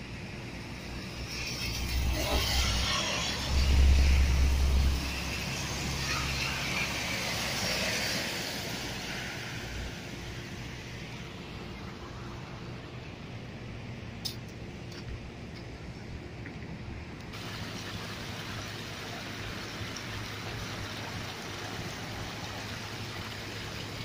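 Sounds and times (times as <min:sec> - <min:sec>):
tyre hiss on wet road: 0:01.0 - 0:10.3
heavy rain on street: 0:01.4 - 0:11.4, 0:17.4 - 0:24.0.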